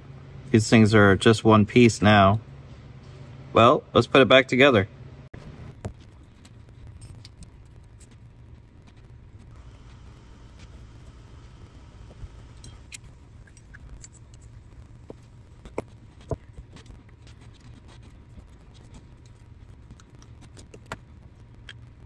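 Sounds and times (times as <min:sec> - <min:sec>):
low steady hum: 0:00.0 - 0:22.0
small metal parts clicking: 0:12.6 - 0:14.6.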